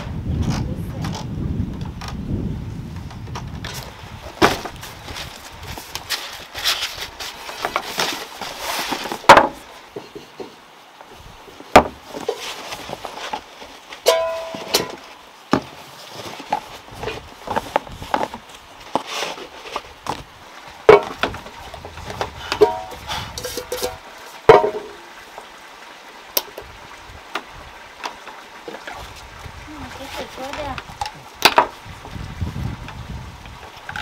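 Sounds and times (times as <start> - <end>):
cardboard box rustling: 4.3 - 9.6
items knocking on wooden floor: 9.0 - 9.6, 11.7 - 12.0, 20.9 - 21.5, 24.5 - 25.0.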